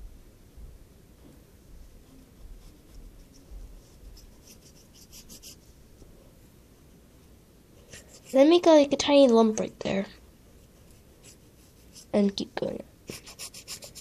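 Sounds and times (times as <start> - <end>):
pencil scratching on paper: 1.9 - 5.7, 7.8 - 8.6, 10.6 - 12.2, 13.1 - 14.0.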